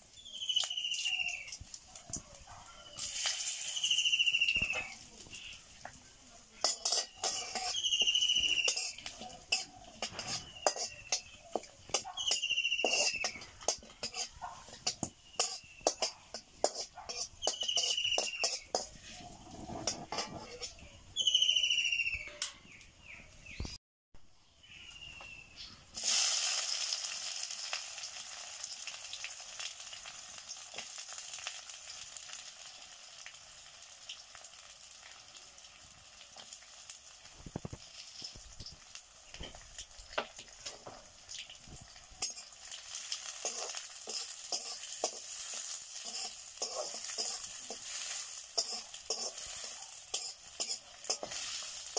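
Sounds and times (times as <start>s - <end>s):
onions sizzling in hot oil: 0.0s - 19.2s, 25.9s - 51.9s
wooden spatula scraping and stirring: 6.6s - 20.9s, 43.3s - 51.9s.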